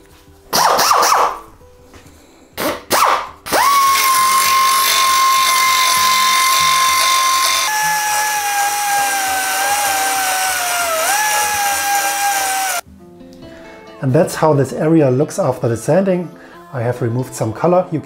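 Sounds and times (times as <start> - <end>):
belt grinder whining: 3.5 - 12.8.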